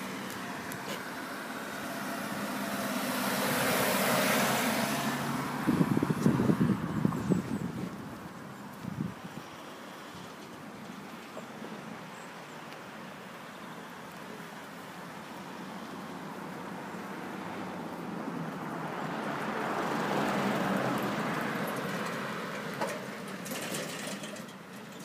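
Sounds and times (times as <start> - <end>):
vehicle passing: 0.0 - 8.6, 15.6 - 23.3
tyre noise on road: 0.0 - 25.0.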